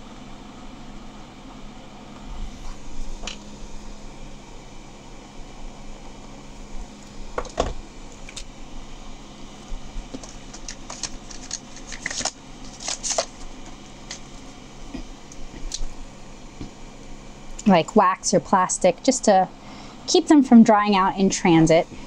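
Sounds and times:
low room hum: 0.0 - 22.0
plastic pens clicking and rustling: 10.2 - 14.2.

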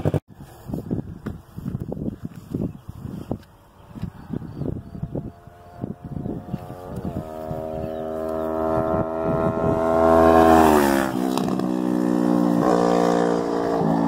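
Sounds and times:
motorcycle riding past: 4.1 - 14.0.

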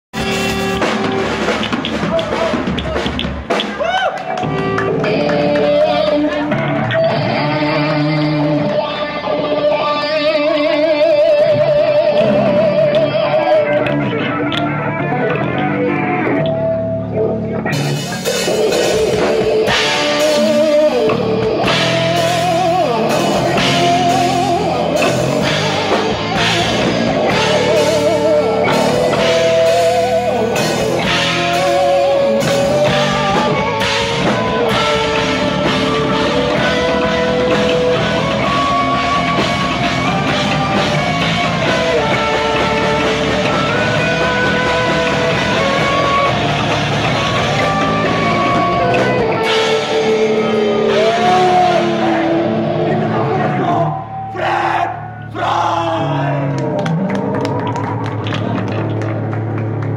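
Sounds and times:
bass guitar: 0.0 - 59.9
electric guitars: 0.1 - 54.4, 56.0 - 59.9
drum kit and cymbals: 0.2 - 4.8, 17.7 - 52.8
wavering lead melody: 4.4 - 55.3.

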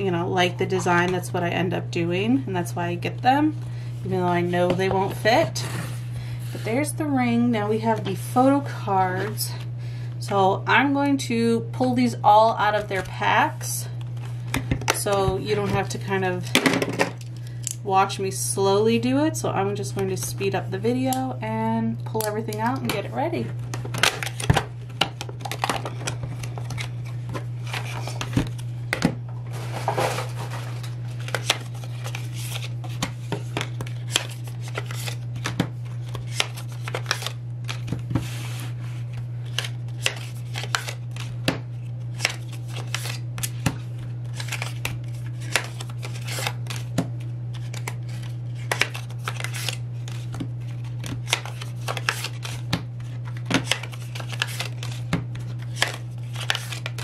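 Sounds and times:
clicks and rustles of card and plastic: 22.2 - 38.6, 39.4 - 57.0.

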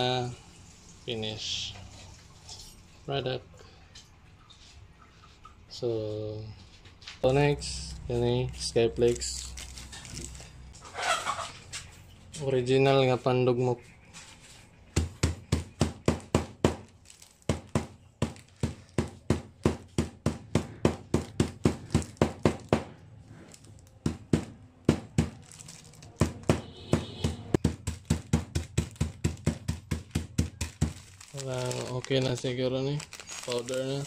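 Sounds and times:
stone pounding crackers on table: 15.0 - 16.8, 17.5 - 23.0, 24.0 - 25.4, 26.2 - 31.1.

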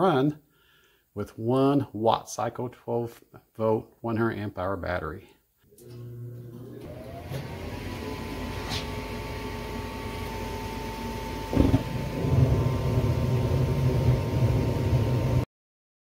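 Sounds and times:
furnace motor whine: 5.7 - 15.5
burner low rumble: 10.5 - 15.4
furnace thump: 11.4 - 12.8.

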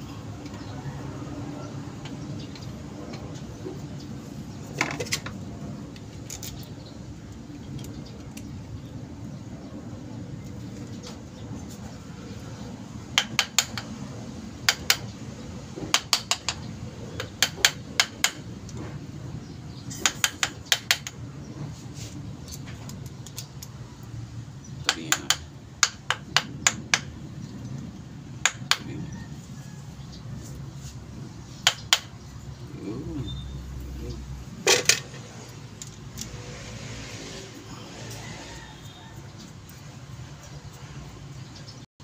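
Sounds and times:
tools tapping on metal: 13.2 - 14.0, 14.6 - 15.1, 15.8 - 18.9, 19.9 - 21.2, 24.8 - 27.1, 28.4 - 28.9, 31.6 - 32.2.

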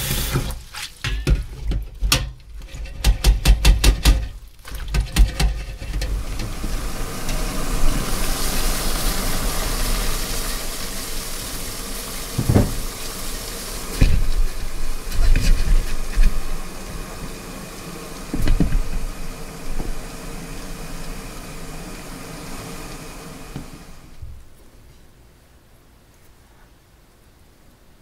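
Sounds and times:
pot of water hissing on stove: 0.0 - 1.6, 2.5 - 24.6
steamer knocking on pot: 2.9 - 4.4, 12.4 - 12.9, 18.3 - 19.2.

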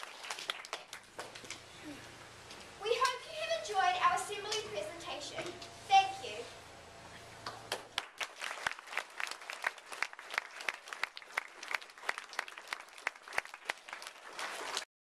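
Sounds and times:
audience applauding: 0.0 - 1.3, 7.4 - 14.9.

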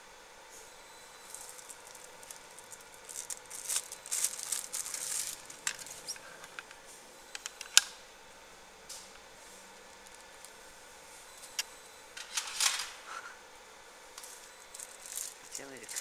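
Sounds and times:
laser crackling hiss with ticks: 1.2 - 6.2.

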